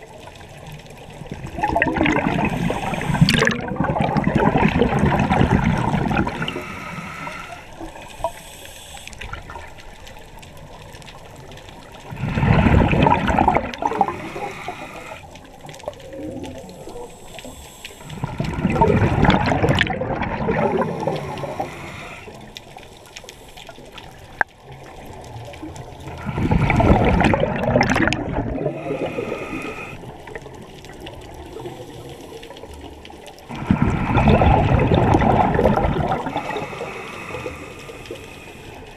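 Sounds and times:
gurgling rush of exhaled bubbles: 0.0s - 8.4s, 11.8s - 22.5s, 24.6s - 38.8s
hissing regulator inhalations: 2.3s - 9.6s, 12.2s - 15.5s, 16.5s - 19.6s, 20.4s - 24.3s, 28.6s - 30.1s, 33.5s - 38.9s.

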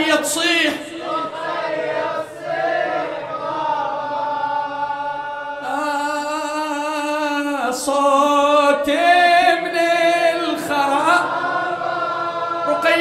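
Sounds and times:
man chanting unaccompanied: 0.0s - 1.2s, 5.0s - 11.4s, 12.6s - 13.0s.

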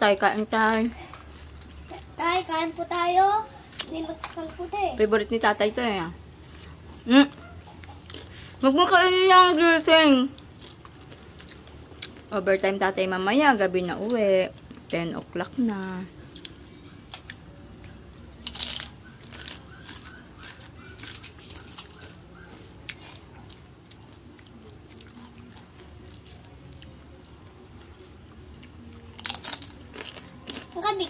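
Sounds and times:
people crunching chips: 6.5s - 8.6s, 10.3s - 12.3s, 18.4s - 22.2s, 22.8s - 27.4s, 28.6s - 31.0s.

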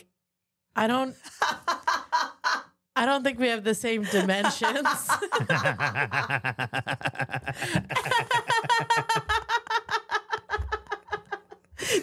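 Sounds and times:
people laughing hard: 4.0s - 12.0s.

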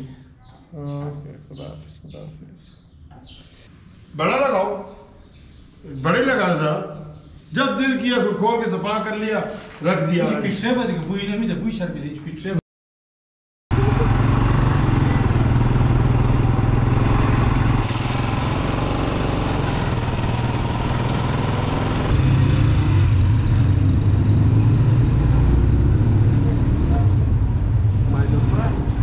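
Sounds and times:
motorcycle engine running: 13.7s - 27.4s.

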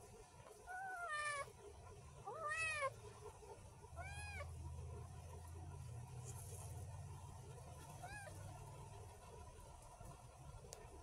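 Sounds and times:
kitten meowing: 2.3s - 2.9s.

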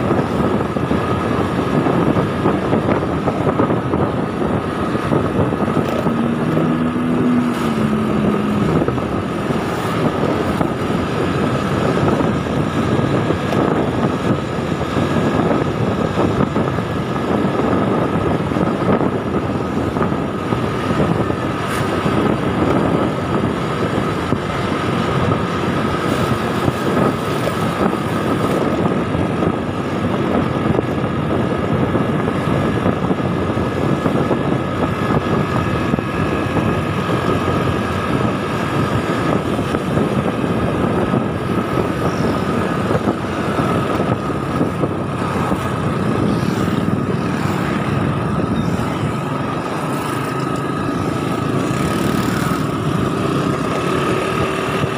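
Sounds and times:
road and wind noise: 0.0s - 54.9s
scooter engine running: 0.0s - 54.9s.

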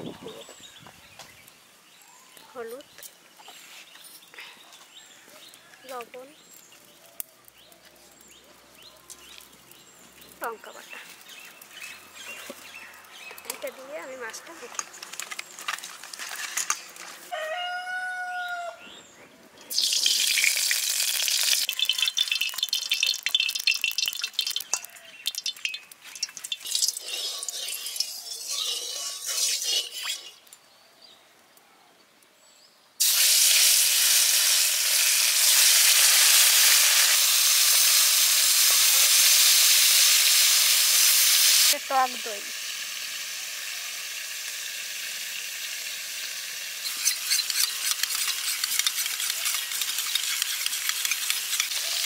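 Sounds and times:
rooster crowing: 17.3s - 18.9s
fish sizzling in hot oil: 19.7s - 30.4s, 33.0s - 52.0s
spatula scraping: 24.5s - 30.5s, 46.8s - 52.0s.

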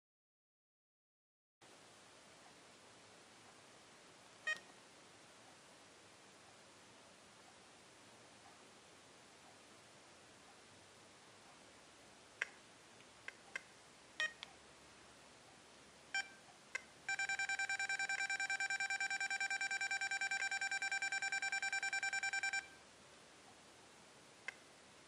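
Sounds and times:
remote key beeps: 4.5s - 4.7s, 14.2s - 14.4s, 16.1s - 16.4s, 17.1s - 22.8s.

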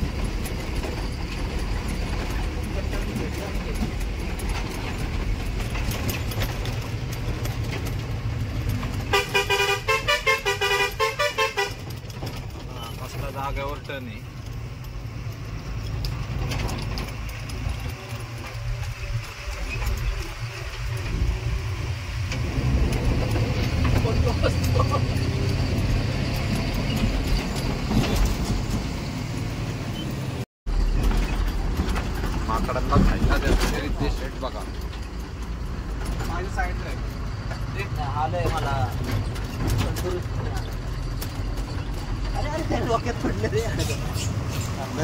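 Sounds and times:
cab rattling and ticking: 0.0s - 45.0s
truck engine running: 0.0s - 45.0s
multi-tone horn blasts: 9.1s - 12.0s.

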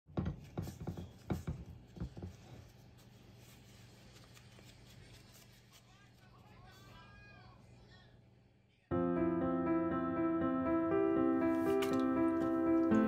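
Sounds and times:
banana leaf wrapper crinkling: 2.9s - 6.6s.

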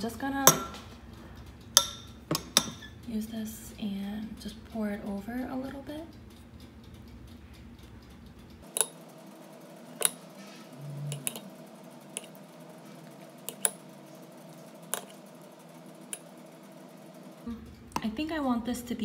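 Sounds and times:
metal spoon clinking on pot: 0.4s - 0.8s, 1.8s - 2.9s.

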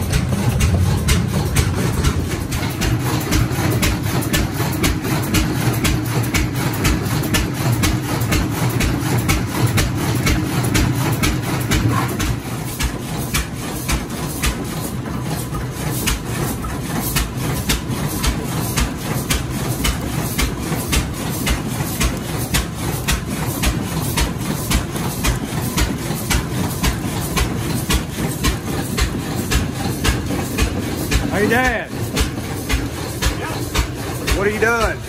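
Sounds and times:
regular sharp knocking beat: 0.0s - 14.6s
engine low rumble: 0.0s - 35.0s.

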